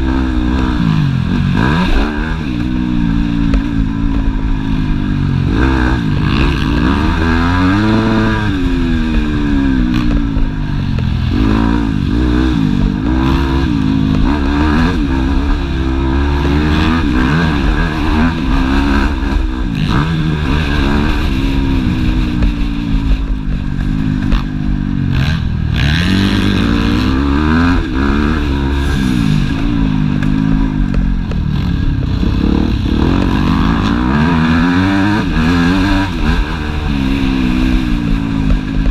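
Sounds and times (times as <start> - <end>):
motocross engine revving: 0.0 - 38.9.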